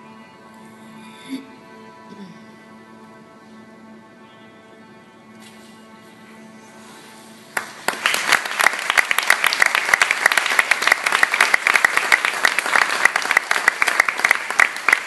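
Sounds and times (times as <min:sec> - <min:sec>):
congregation applauding: 0:07.5 - 0:15.0.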